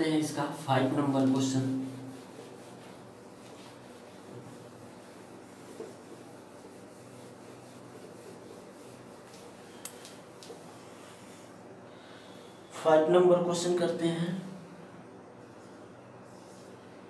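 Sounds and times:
eraser rubbing on whiteboard: 1.2s - 9.8s.

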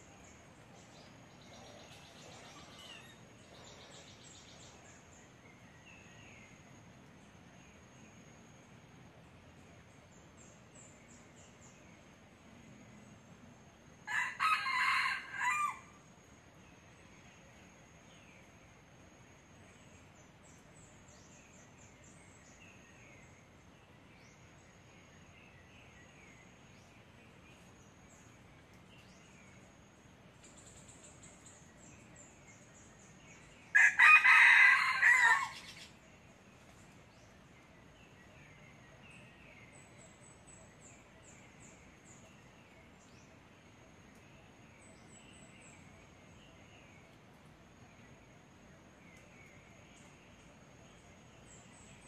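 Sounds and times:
rooster crowing: 14.0s - 16.0s, 33.7s - 35.8s.

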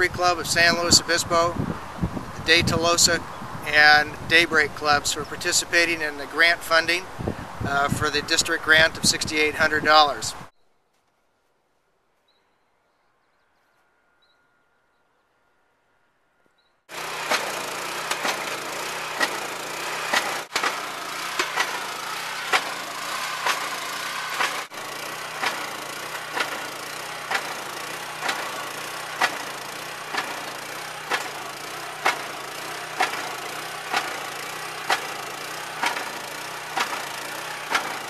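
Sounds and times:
small gasoline engine running: 0.0s - 10.4s, 16.9s - 38.0s
drill rig knocking: 16.9s - 38.0s.

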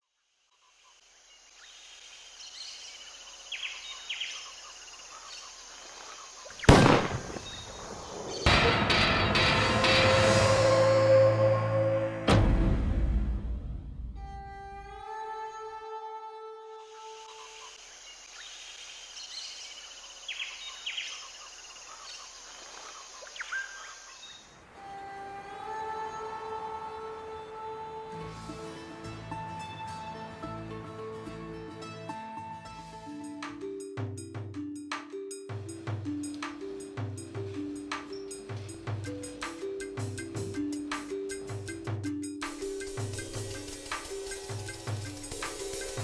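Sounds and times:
background hiss: 0.0s - 8.5s, 16.8s - 30.4s, 35.1s - 46.0s
sharp bird calls: 2.5s - 8.5s
rifle shot: 6.6s - 8.8s
bird chirps: 17.1s - 24.5s
fast buzzy insect trill: 42.6s - 46.0s.

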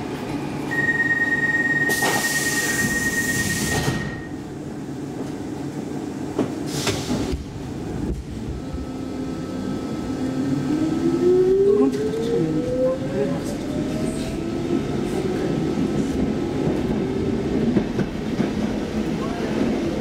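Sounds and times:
train doors closing: 0.2s - 5.4s, 6.3s - 8.9s
held warning beep: 0.7s - 4.3s.

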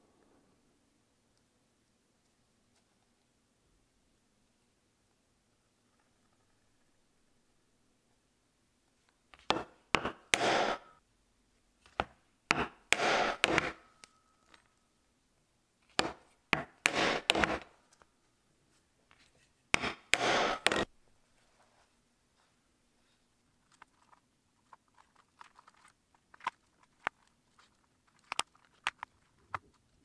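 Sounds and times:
chisel knocking through leather: 9.4s - 10.9s, 11.8s - 13.9s, 15.9s - 17.7s, 19.8s - 20.9s
chisel scraping leather: 9.4s - 10.9s, 11.8s - 13.8s, 15.9s - 17.7s, 19.8s - 20.9s.

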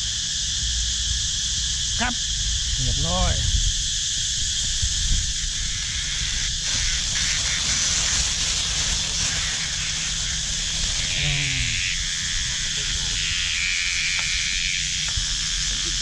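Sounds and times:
cicadas buzzing: 0.0s - 16.0s
plastic bag crinkling: 6.4s - 11.8s.

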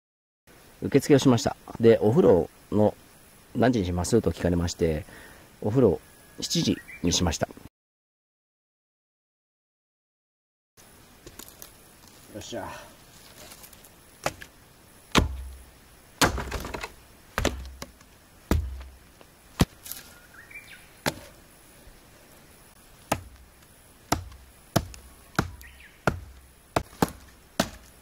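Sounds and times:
hatchet chopping wood: 14.2s - 14.5s, 15.1s - 15.6s, 16.2s - 19.0s, 21.0s - 21.3s, 23.1s - 28.0s.

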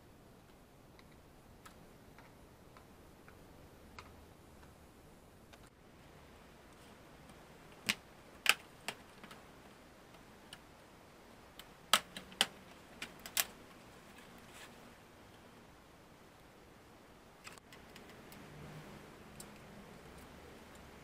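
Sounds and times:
plastic clips popping loose: 11.6s - 13.6s.

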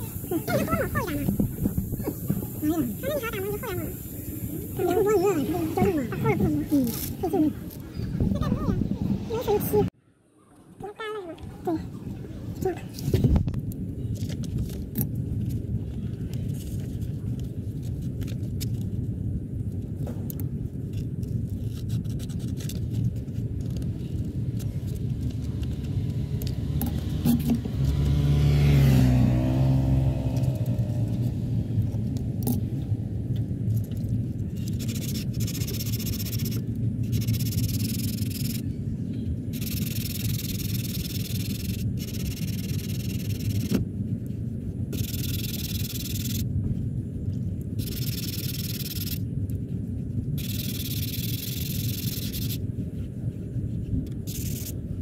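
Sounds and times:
road traffic rumble: 0.0s - 10.0s, 11.2s - 55.0s
car passing close by: 26.0s - 31.8s.

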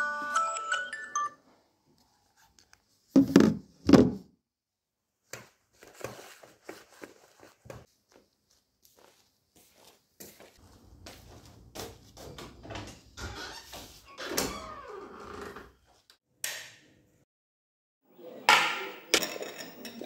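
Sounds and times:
phone alarm melody: 0.0s - 1.4s.

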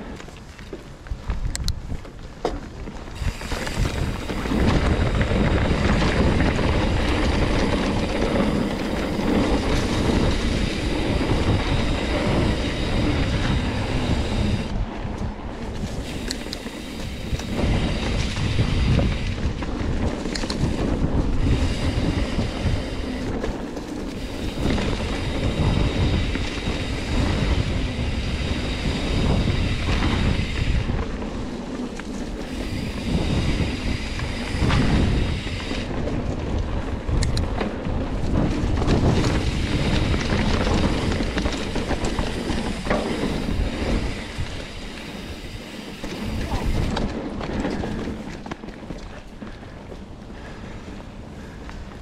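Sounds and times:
bike frame rattling: 0.0s - 52.0s
tyre rumble on dirt trail: 0.0s - 52.0s
wind buffeting microphone: 0.0s - 52.0s.

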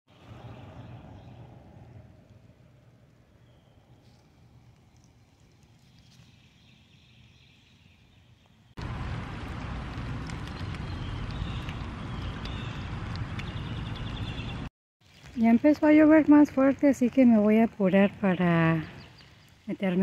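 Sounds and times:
heavy rain rushing: 8.8s - 13.8s.

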